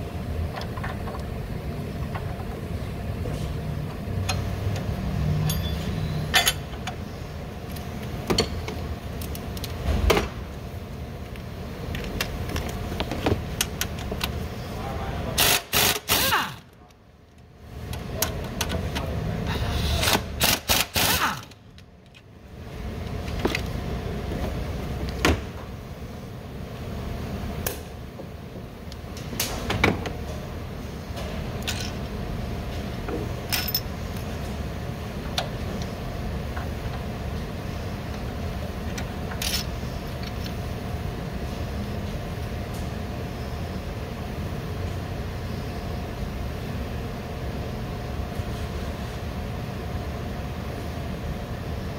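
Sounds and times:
steady low hum: 0:00.0 - 0:51.9
metal parts clinking: 0:33.5 - 0:33.9, 0:39.3 - 0:39.7.

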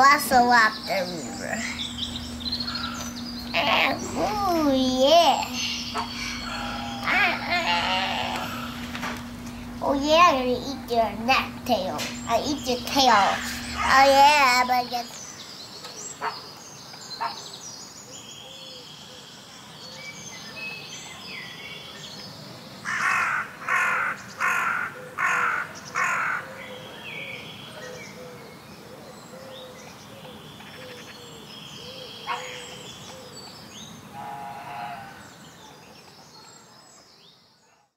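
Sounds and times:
small birds chirping: 0:00.0 - 0:23.0, 0:25.2 - 0:34.1
loud harsh bird calls: 0:00.4 - 0:10.3, 0:12.1 - 0:15.4, 0:22.8 - 0:28.4, 0:29.3 - 0:35.7.

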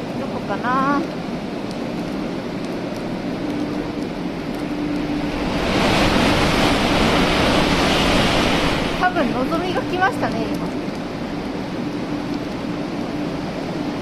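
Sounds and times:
bullet train passing at speed: 0:04.1 - 0:14.0.

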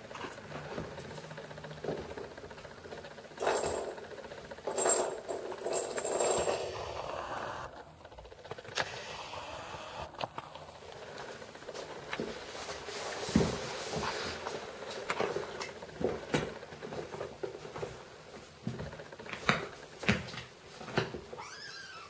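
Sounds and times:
kittens rattling and scuffling: 0:00.0 - 0:08.8, 0:10.3 - 0:21.7
camera lens motor noise: 0:08.6 - 0:10.4.

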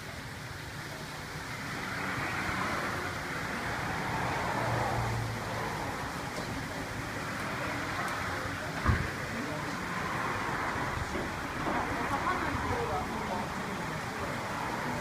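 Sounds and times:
water pouring into a tank: 0:00.0 - 0:15.0.

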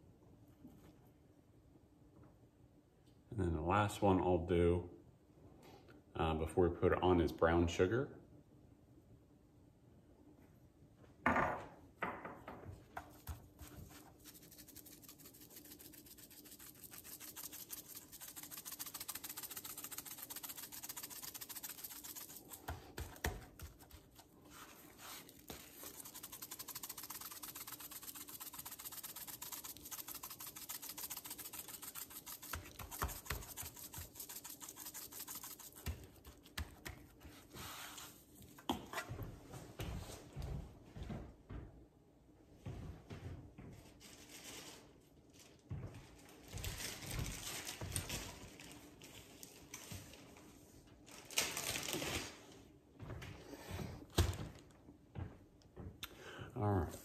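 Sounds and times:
hand rubbing sugar into meat: 0:13.0 - 0:38.4.

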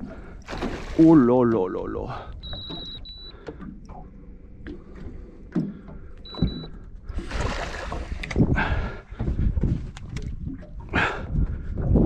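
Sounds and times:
water splashing: 0:00.0 - 0:09.2.

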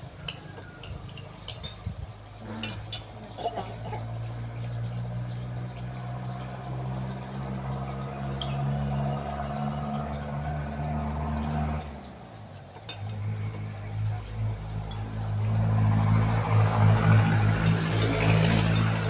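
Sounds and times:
spoons clinking on plates: 0:00.3 - 0:03.7, 0:12.8 - 0:13.6, 0:17.5 - 0:19.0.

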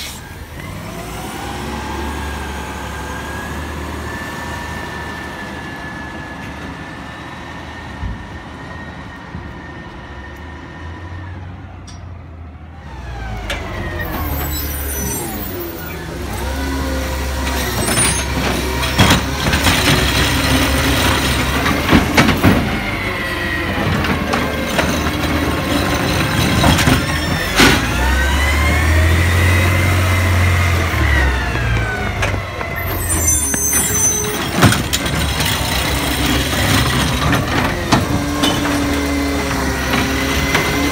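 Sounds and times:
air brakes hissing: 0:00.0 - 0:00.4
diesel garbage truck engine: 0:00.0 - 0:40.9.

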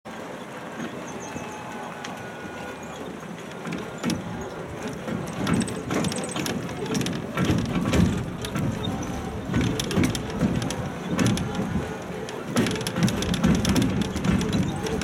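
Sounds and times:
road train running noise: 0:00.1 - 0:15.0
carriage rattling and knocking: 0:03.5 - 0:15.0.

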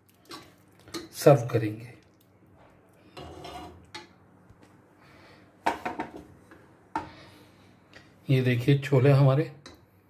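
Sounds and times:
ladle scraping metal pan: 0:03.2 - 0:04.1.

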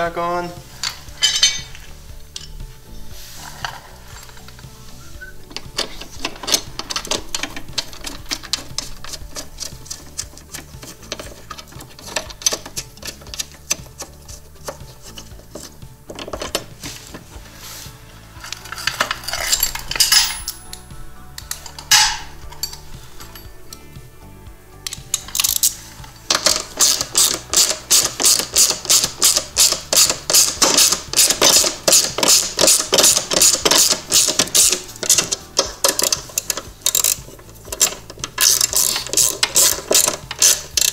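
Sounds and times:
clinks of tools and metal parts: 0:00.7 - 0:02.7, 0:03.4 - 0:17.5, 0:18.4 - 0:24.0, 0:24.8 - 0:40.9
socket ratchet clicking: 0:05.5 - 0:16.8, 0:24.9 - 0:40.9.

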